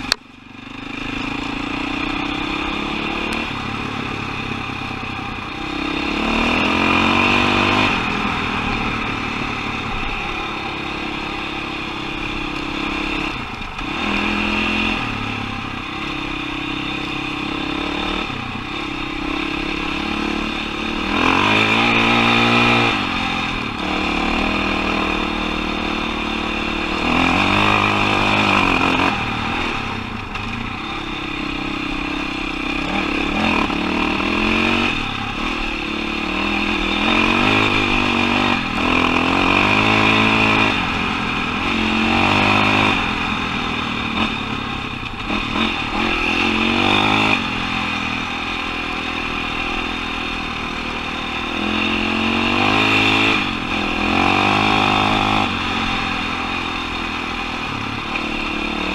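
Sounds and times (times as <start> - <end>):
dirt bike engine revving: 0.0 - 58.9.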